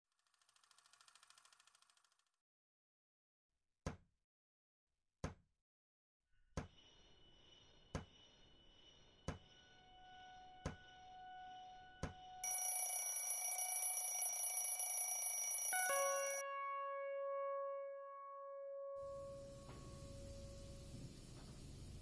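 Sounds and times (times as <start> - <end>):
lingering ringing tone: 10.0 - 16.6
alarm clock bell ringing: 12.4 - 16.5.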